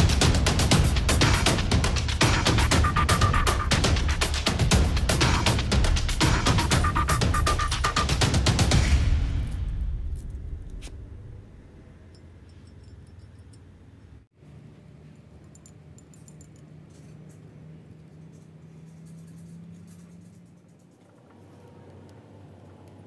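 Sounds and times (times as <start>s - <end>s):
background music: 0.0s - 10.9s
steady low hum: 0.0s - 17.1s
metallic clicks of small parts: 12.1s - 21.2s.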